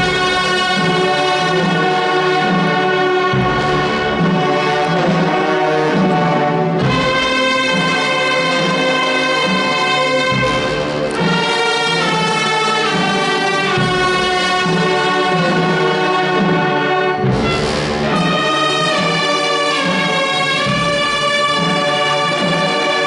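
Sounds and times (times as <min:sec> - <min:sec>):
percussion crashes: 0:00.0 - 0:23.0
wind band playing slow march: 0:00.0 - 0:23.0.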